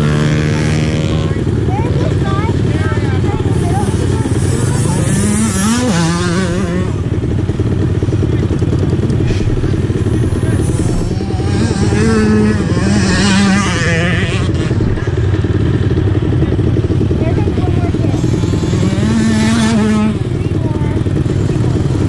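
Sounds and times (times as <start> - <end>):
dirt bike engine revving: 0.0 - 22.0.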